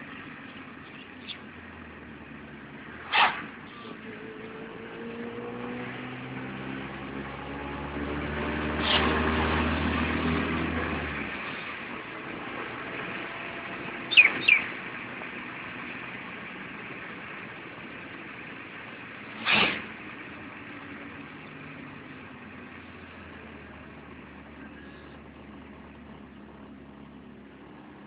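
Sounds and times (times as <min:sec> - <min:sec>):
vehicle and road noise: 0:00.0 - 0:28.0
short rush of noise: 0:03.0 - 0:03.6, 0:19.4 - 0:20.0.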